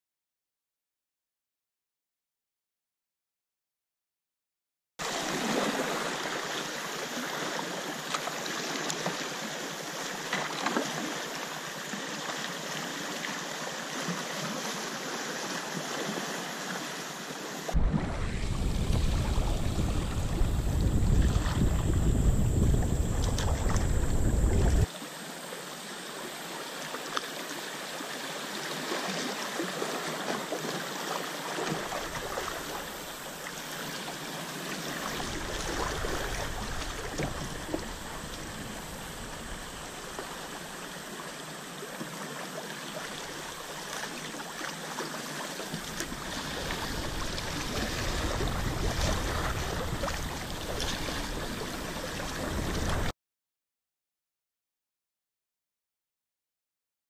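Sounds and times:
river water rippling over gravel: 5.0 - 25.2, 26.2 - 53.1
wind rumbling on microphone: 17.7 - 24.9, 34.9 - 41.0, 45.8 - 53.1.

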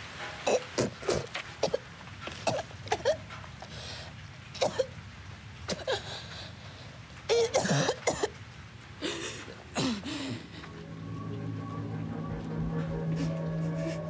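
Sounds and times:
girl coughing and choking: 7.3 - 8.3.

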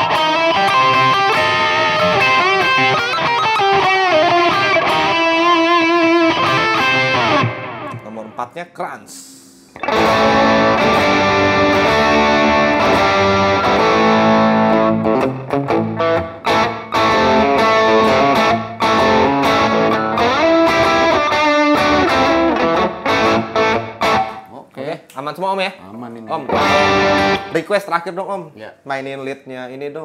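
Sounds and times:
overdriven electric guitar: 0.0 - 8.0, 9.7 - 24.5, 26.4 - 27.6.

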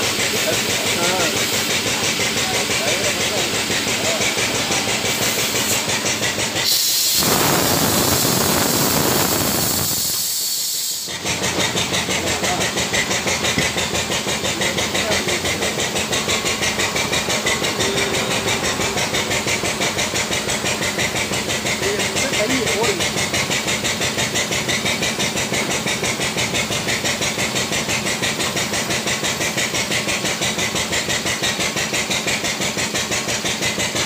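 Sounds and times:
loud hiss: 0.0 - 11.7
hydraulic power unit pulsing: 0.0 - 34.0.

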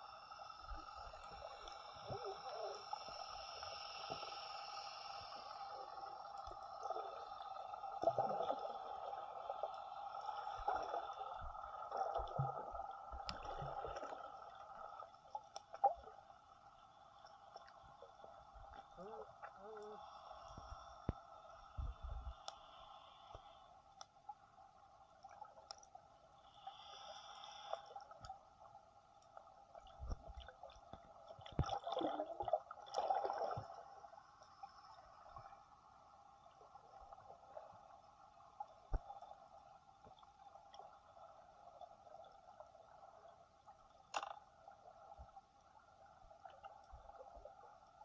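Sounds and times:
steady underwater hum: 0.0 - 48.0
water gurgling and bubbling: 31.6 - 33.6
sharp underwater clicks: 44.0 - 44.5.

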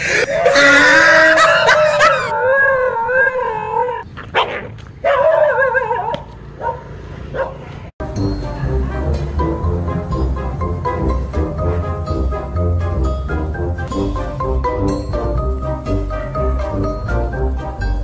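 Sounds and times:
dog howling: 0.4 - 4.0
dog yelping: 0.4 - 6.8
dog barking: 4.3 - 7.6.

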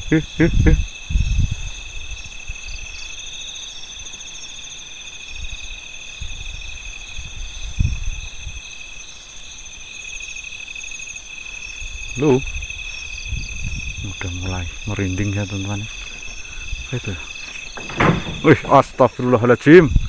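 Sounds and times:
crickets trilling: 0.0 - 20.0
low rumbles: 13.2 - 19.2.

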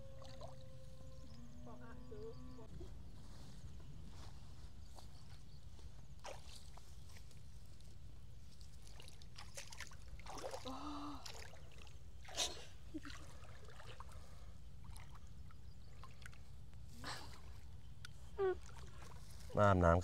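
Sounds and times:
woman murmuring: 18.4 - 18.6.

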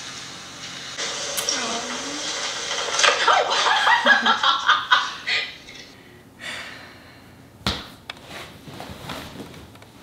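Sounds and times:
woman giggling: 3.6 - 5.7.

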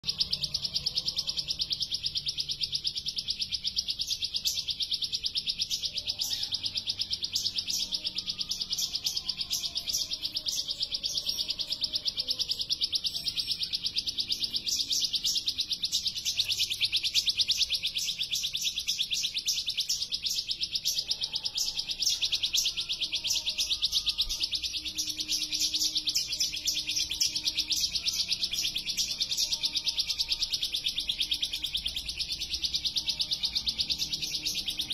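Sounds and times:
bird singing fast trill: 0.0 - 34.9.

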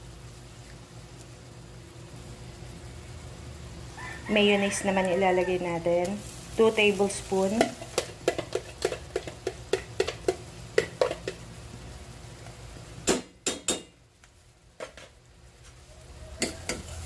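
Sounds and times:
metal spoon tapping dishes: 7.6 - 11.4, 16.4 - 16.9.

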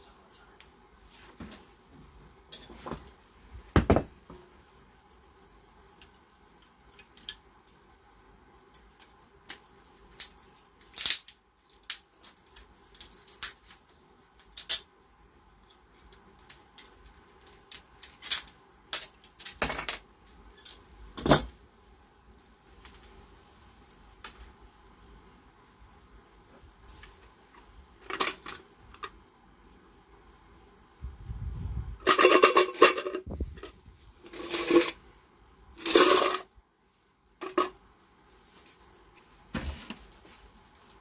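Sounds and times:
plastic parts cracking and snapping: 8.9 - 14.9, 15.6 - 19.9.

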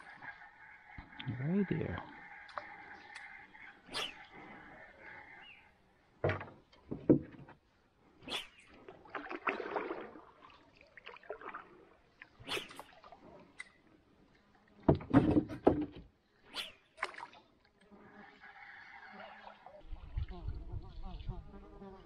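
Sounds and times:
paddle splashes: 8.3 - 13.8, 16.8 - 17.8
water sloshing: 8.7 - 15.9.

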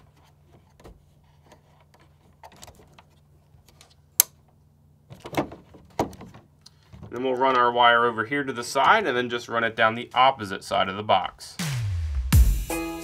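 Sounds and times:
plastic clicks and rustling: 0.0 - 4.5.

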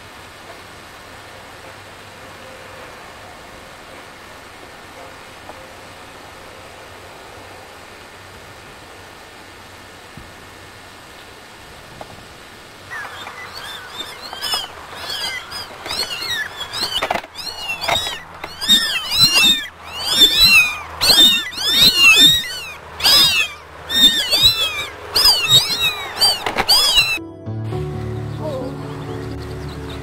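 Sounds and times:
kittens mewing: 12.9 - 27.2.

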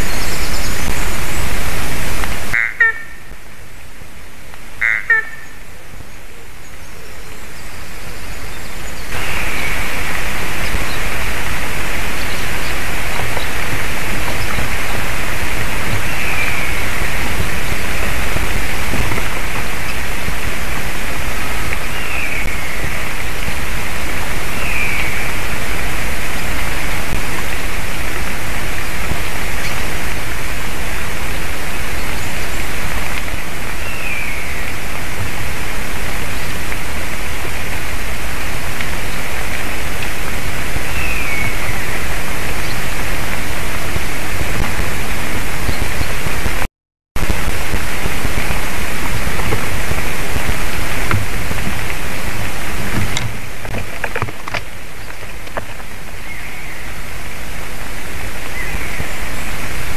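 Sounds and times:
outdoor microphone hiss: 0.0 - 59.9
bird calls falling in pitch: 2.5 - 3.3, 4.8 - 5.6.

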